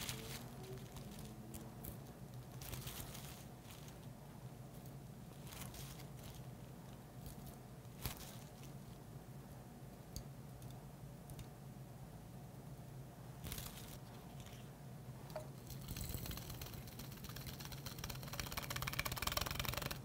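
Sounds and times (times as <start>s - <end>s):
plastic bag crinkling: 0.0s - 4.1s, 5.3s - 6.5s, 7.3s - 9.0s
low room hum: 0.0s - 20.0s.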